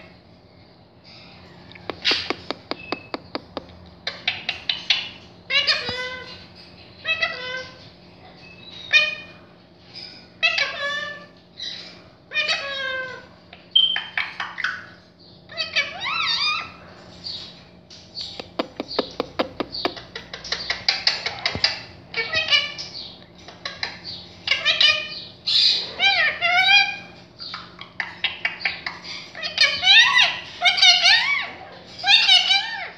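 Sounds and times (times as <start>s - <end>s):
parakeet chattering: 1.9s - 6.1s, 18.2s - 22.9s.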